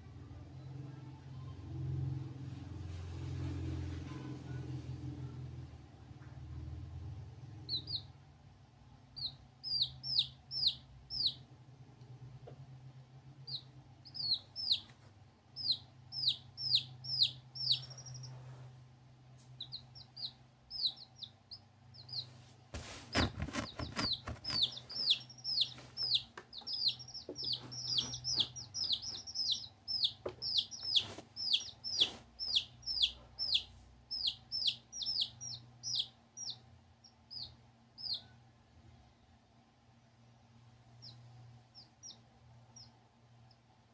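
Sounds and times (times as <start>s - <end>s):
baby chicks peeping: 6.2s - 8.3s, 9.1s - 11.5s, 13.4s - 18.8s, 19.4s - 39.0s, 40.9s - 43.7s.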